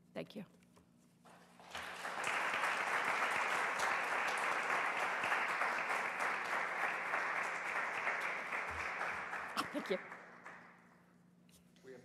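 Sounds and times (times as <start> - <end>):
audience applauding: 1.3 - 10.8.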